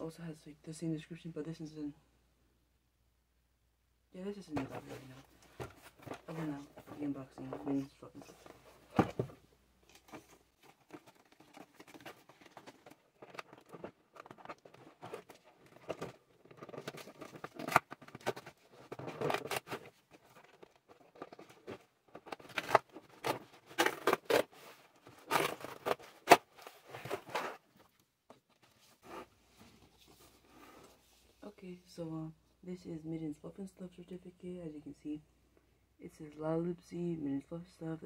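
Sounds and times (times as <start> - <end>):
packaging rustling and tearing: 9.8 - 28.0.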